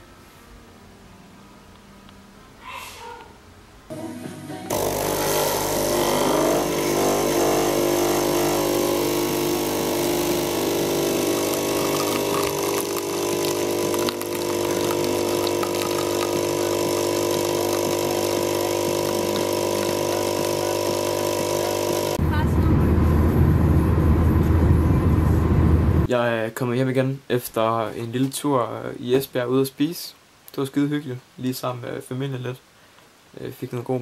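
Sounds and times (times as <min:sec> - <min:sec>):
espresso machine pump buzzing: 0:04.7 - 0:22.2.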